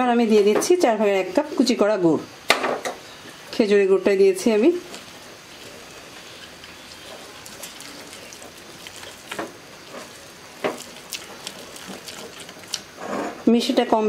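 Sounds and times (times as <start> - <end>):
faint sizzle: 0.0 - 14.0
spatula scraping frying pan: 12.8 - 13.6.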